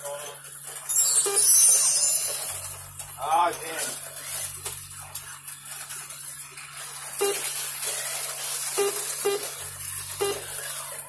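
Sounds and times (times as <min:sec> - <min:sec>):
slot cars whirring on track: 0:00.7 - 0:07.0.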